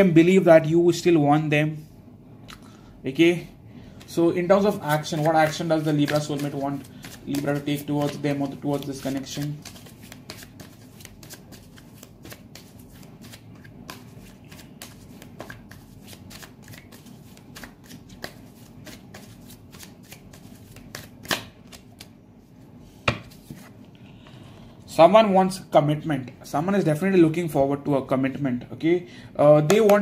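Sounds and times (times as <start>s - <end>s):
cards shuffling: 4.5s - 22.1s
cards snapping: 17.6s - 22.1s.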